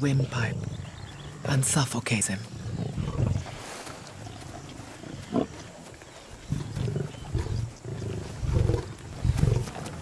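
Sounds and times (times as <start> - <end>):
lions growling: 2.5 - 3.6, 4.3 - 10.0.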